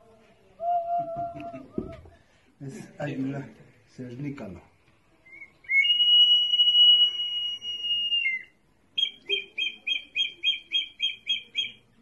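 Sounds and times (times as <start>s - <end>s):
high ceramic whistle: 5.3s - 11.8s.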